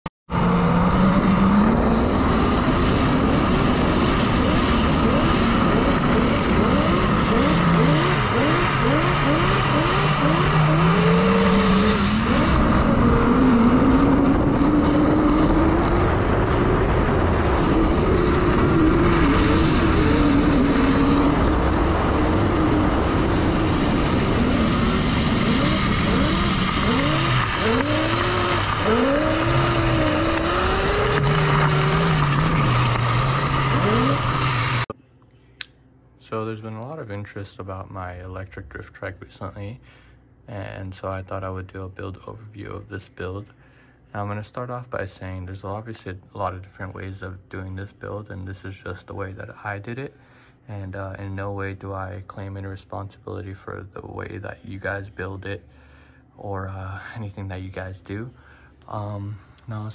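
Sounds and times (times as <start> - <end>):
electric motor whine: 0.3 - 34.9
wind and road noise: 0.3 - 34.9.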